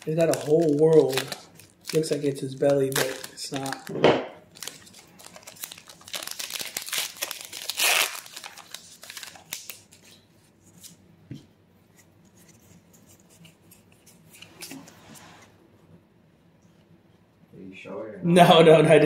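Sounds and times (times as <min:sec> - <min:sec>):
foil wrapper tearing and crinkling: 0:00.0 - 0:03.9, 0:04.5 - 0:10.2.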